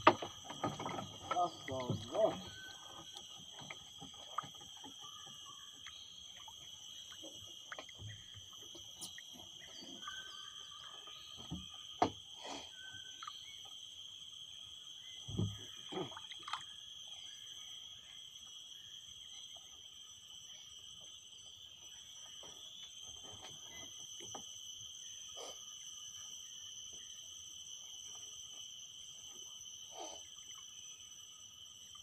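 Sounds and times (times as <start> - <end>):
knocks in wooden boat: 0.0 - 2.7, 15.3 - 15.6
insects droning: 0.0 - 32.0.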